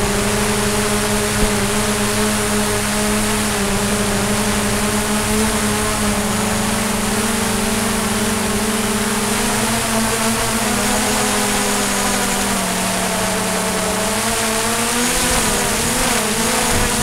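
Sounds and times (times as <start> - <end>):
drone propellers buzzing: 0.0 - 17.0.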